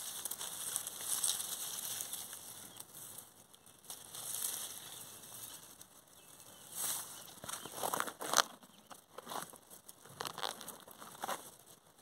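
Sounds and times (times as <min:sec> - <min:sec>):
leaves and stems rustling: 0:00.0 - 0:12.0.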